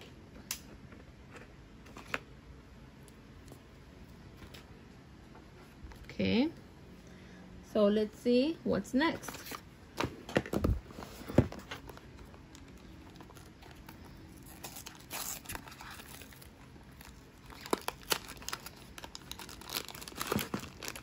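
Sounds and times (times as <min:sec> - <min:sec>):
plastic bag crinkling: 0:11.8 - 0:21.0.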